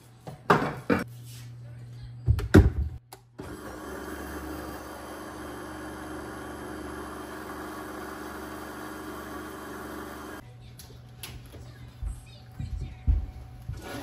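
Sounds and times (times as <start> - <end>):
blender motor running: 3.4 - 10.4.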